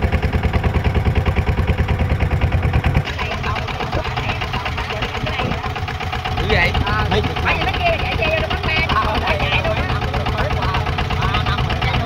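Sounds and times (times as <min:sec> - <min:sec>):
boat engine chugging: 0:00.0 - 0:12.0.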